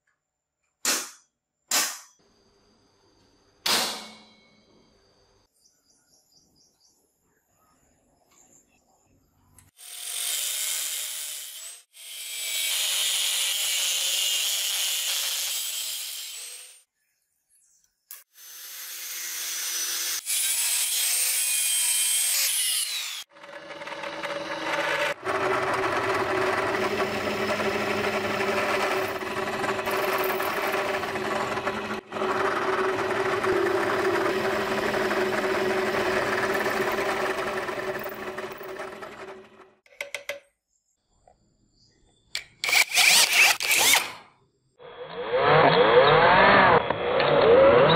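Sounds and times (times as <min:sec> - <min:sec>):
angle grinder cutting steel: 0:09.8 - 0:16.9, 0:18.2 - 0:39.8, 0:42.6 - 0:44.2
drill press humming: 0:23.3 - 0:39.8.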